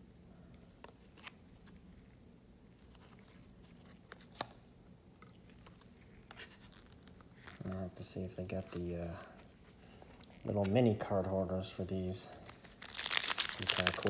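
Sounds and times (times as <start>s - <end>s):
trading cards rustling: 5.2s - 11.0s, 12.2s - 14.0s.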